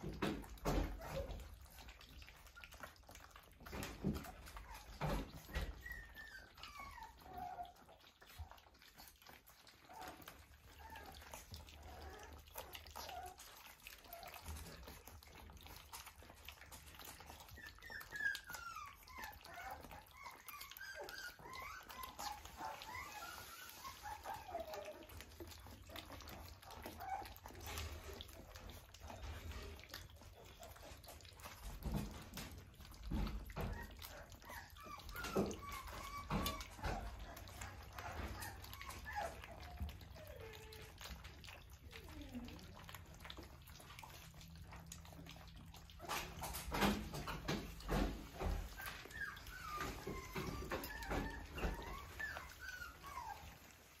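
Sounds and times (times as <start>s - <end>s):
puppies lapping and smacking: 0.0s - 54.0s
puppies whimpering: 0.0s - 54.0s.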